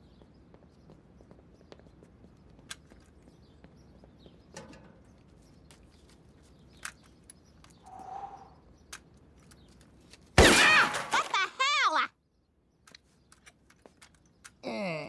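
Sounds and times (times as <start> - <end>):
faint bird chirps: 0.0 - 9.8
short breathy sound: 7.9 - 8.6.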